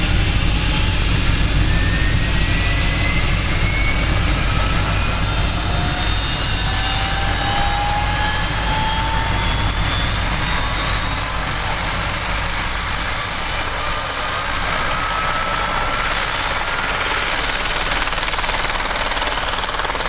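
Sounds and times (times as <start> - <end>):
helicopter rotor beat: 0.0 - 20.0
helicopter turbine whine: 0.0 - 20.0.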